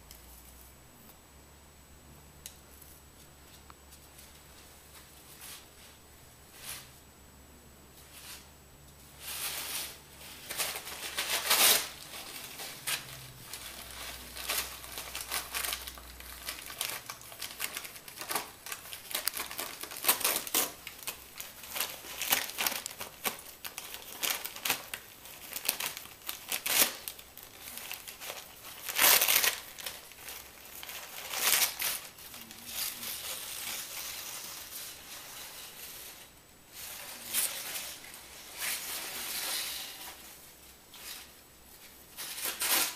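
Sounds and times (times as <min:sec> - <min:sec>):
crumpled paper rustling and crinkling: 0:09.2 - 0:42.9.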